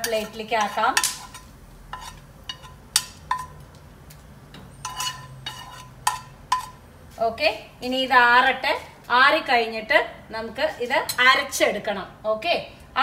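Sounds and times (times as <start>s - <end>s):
metal spoon clinking on pan: 0.0s - 3.6s, 4.8s - 6.8s.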